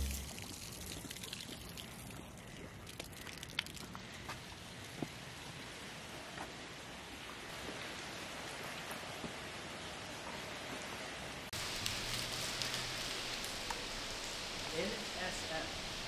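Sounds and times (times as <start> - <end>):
water splashing onto pavement: 0.0 - 4.2, 11.5 - 16.0.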